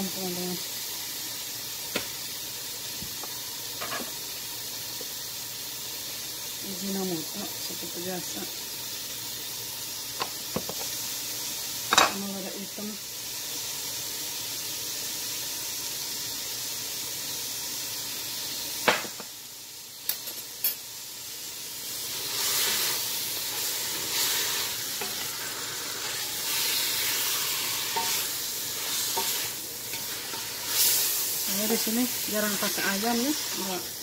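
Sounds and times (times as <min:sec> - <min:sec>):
meat sizzling in a pot: 0:00.0 - 0:34.0
wooden spatula scraping a pot: 0:22.2 - 0:33.7.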